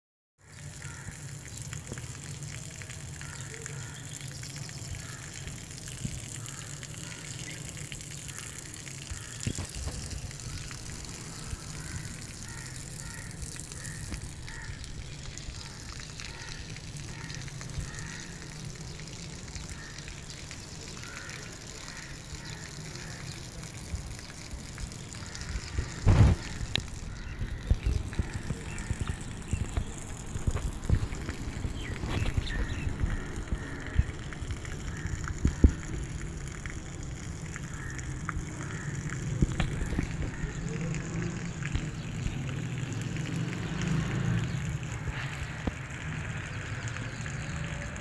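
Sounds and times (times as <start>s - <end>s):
wind on microphone: 25.7s - 34.5s.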